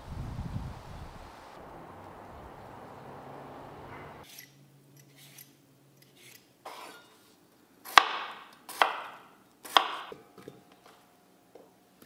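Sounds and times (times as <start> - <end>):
knife chopping on wooden board: 7.9 - 10.2.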